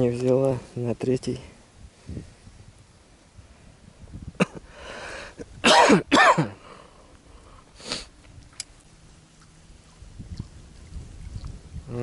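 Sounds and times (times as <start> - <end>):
soft breathy burst: 4.6 - 5.4, 6.6 - 8.2
person coughing: 5.6 - 6.6.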